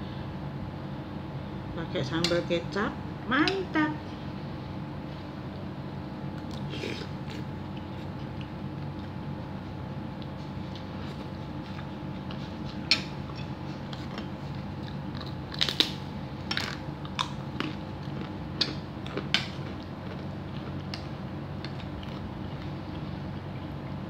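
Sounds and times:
steady low hum: 0:00.0 - 0:24.0
chewing and lip-smacking: 0:06.4 - 0:24.0.

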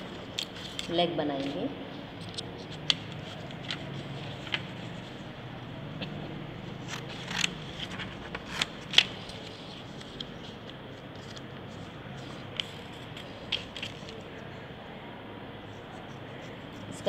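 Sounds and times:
paper crackling: 0:02.8 - 0:05.1, 0:06.8 - 0:14.4.

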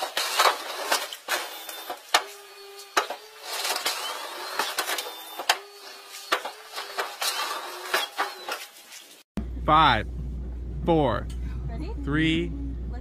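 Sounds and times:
motor whining: 0:00.0 - 0:08.6.

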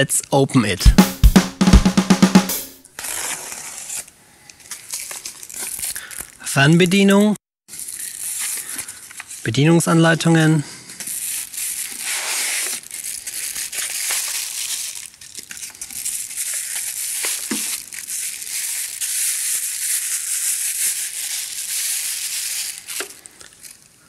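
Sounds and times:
foam rubbing against cardboard: 0:03.0 - 0:04.0, 0:11.4 - 0:12.9
plastic bag crinkling: 0:04.6 - 0:06.5, 0:07.7 - 0:09.6, 0:10.8 - 0:24.0.

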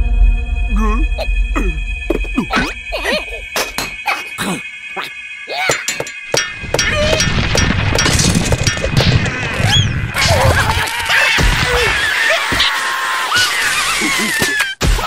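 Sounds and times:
cartoon hits and thumps: 0:00.8 - 0:10.6
squeaky cartoon-voice cries: 0:02.4 - 0:04.4.

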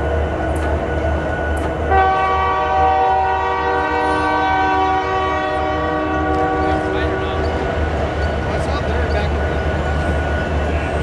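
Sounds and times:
train passing rumble: 0:00.0 - 0:11.0
locomotive chime whistle blast: 0:01.5 - 0:07.4.

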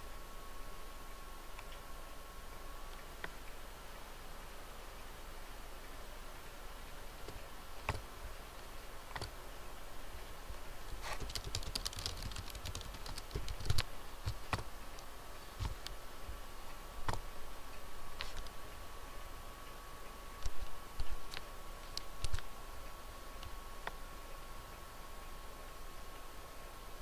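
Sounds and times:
computer keyboard typing: 0:07.3 - 0:08.1, 0:10.9 - 0:14.7, 0:20.4 - 0:22.5.

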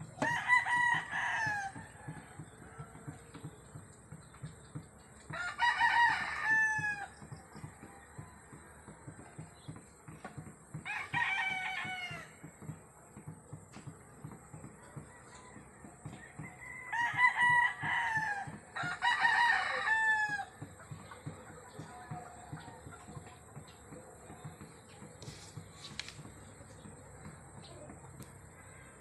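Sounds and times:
rooster crowing: 0:00.2 - 0:03.5, 0:05.3 - 0:09.2, 0:10.8 - 0:12.4, 0:14.8 - 0:22.2.

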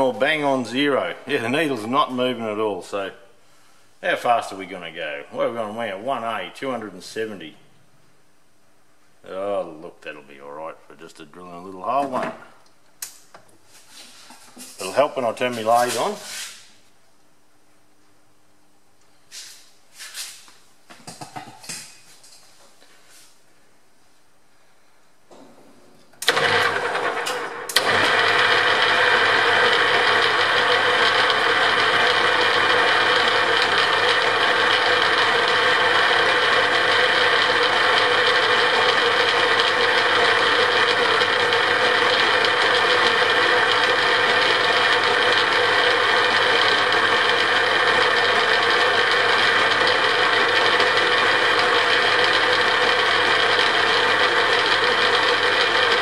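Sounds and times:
metal lathe humming and whining: 0:26.3 - 0:56.0.

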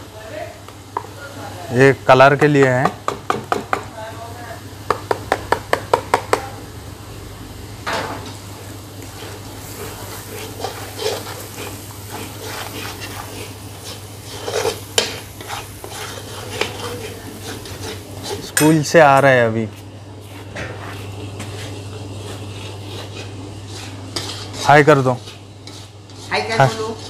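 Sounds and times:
light sizzle: 0:00.0 - 0:27.0
spatula tapping on pan: 0:02.3 - 0:03.9, 0:04.8 - 0:06.6
metal spatula scraping a pan: 0:09.1 - 0:18.9, 0:21.6 - 0:27.0.

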